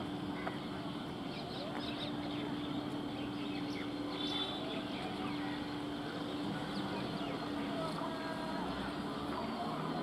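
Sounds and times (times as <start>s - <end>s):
birds chirping: 0.4s - 10.0s
electric train humming: 2.3s - 10.0s.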